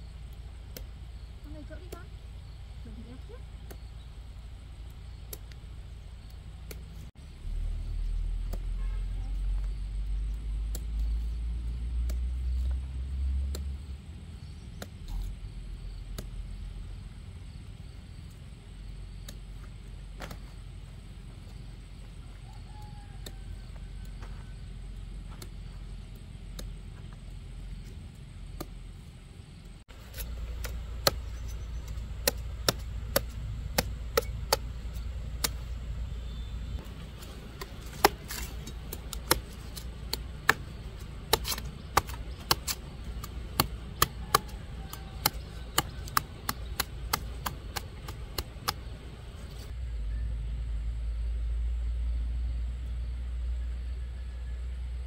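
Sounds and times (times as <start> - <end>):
sharp chopping strikes: 30.1 - 35.6, 36.8 - 49.0.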